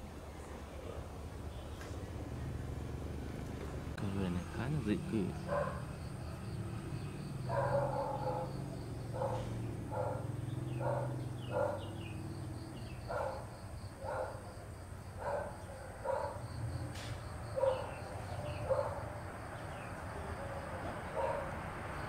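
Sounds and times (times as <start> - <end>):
dog barking: 5.3 - 6.0, 7.4 - 12.0, 13.0 - 14.6, 15.2 - 16.7, 17.5 - 19.2, 21.0 - 21.6.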